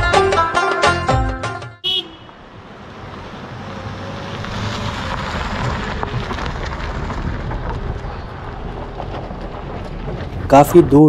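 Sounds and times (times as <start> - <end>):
low engine rumble: 2.1 - 11.0
tyres crunching on gravel: 2.2 - 11.0.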